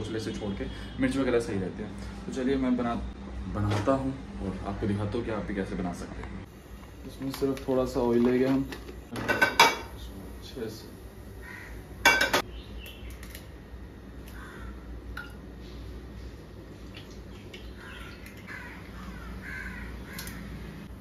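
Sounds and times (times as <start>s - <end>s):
crow cawing: 11.4s - 11.9s, 14.3s - 15.0s, 17.8s - 20.6s.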